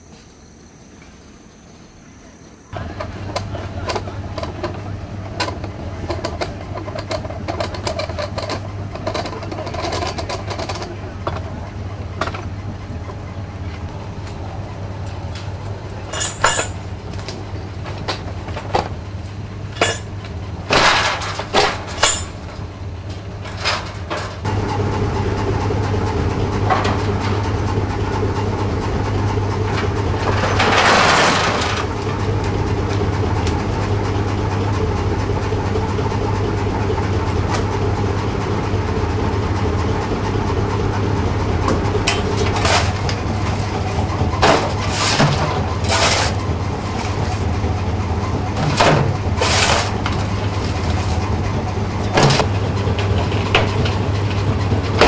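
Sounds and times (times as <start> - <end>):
machine hum: 0.0 - 55.0
mine tub clanking on rails: 2.8 - 14.4, 15.0 - 55.0
spoil tumbling out: 29.8 - 32.3.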